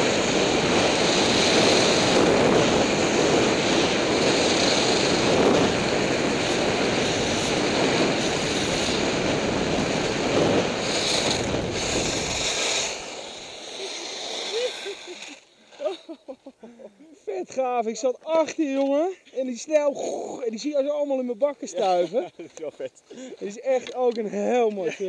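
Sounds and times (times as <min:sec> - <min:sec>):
wind on microphone: 0:00.0 - 0:15.1
skis hissing on snow: 0:00.0 - 0:16.3.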